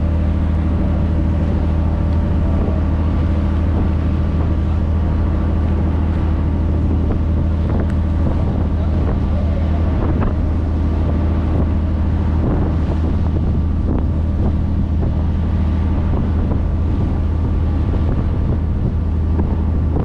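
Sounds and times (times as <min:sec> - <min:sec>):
motorboat engine drone: 0:00.0 - 0:20.0
wake rushing and splashing: 0:00.0 - 0:20.0
wind buffeting microphone: 0:00.0 - 0:20.0.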